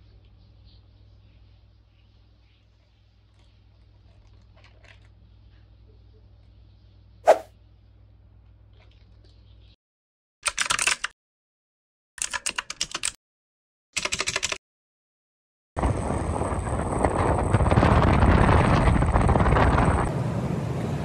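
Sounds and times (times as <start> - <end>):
wind and road noise: 15.8 - 21.0.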